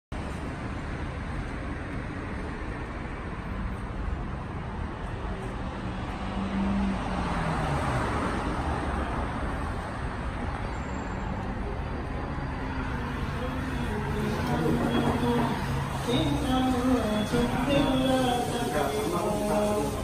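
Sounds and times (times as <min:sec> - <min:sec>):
street traffic rumble: 0:00.1 - 0:20.0
vehicle passing by: 0:05.8 - 0:10.2.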